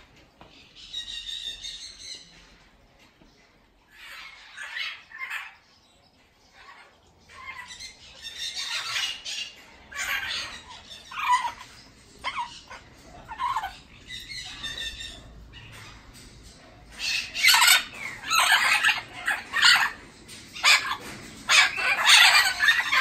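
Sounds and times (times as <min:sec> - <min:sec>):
parrots squawking: 0:03.9 - 0:05.7, 0:06.5 - 0:23.0.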